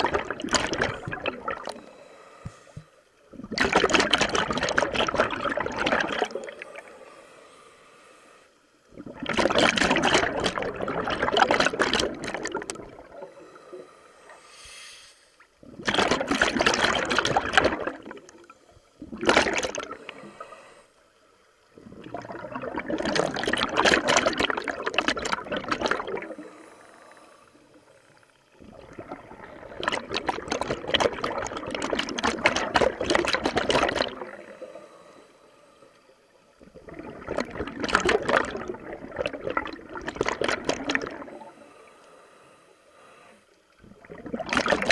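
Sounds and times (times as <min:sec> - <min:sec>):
underwater regulator bubbling: 0:00.0 - 0:07.0, 0:08.9 - 0:13.6, 0:15.6 - 0:20.7, 0:21.7 - 0:26.5, 0:28.6 - 0:34.6, 0:36.6 - 0:41.5, 0:43.8 - 0:44.9.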